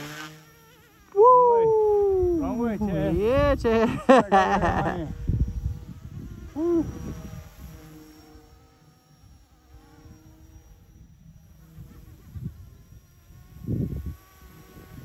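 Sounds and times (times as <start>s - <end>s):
model helicopter buzzing whine: 0.0s - 15.0s.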